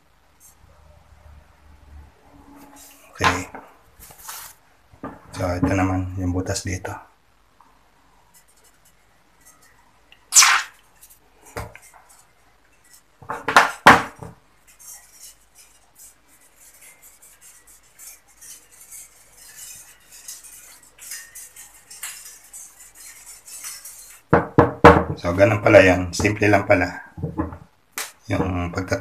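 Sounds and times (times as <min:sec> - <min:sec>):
swab scratching rubbing: 0:08.3 - 0:13.1, 0:14.4 - 0:24.4.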